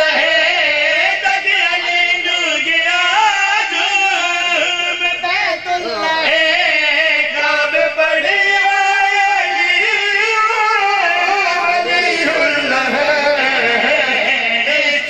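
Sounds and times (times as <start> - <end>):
man chanting into a microphone: 0.0 - 15.0.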